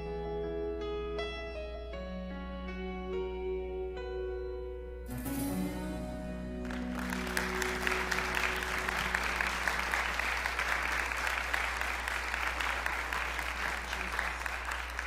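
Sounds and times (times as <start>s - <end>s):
backing music held notes: 0.0s - 13.6s
congregation applauding: 6.4s - 15.0s.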